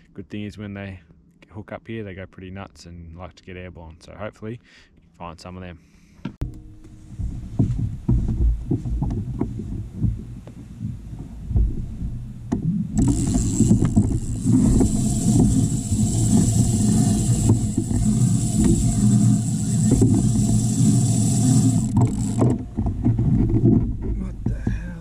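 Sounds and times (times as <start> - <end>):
knocks and bumps in a kayak: 6.3 - 25.0.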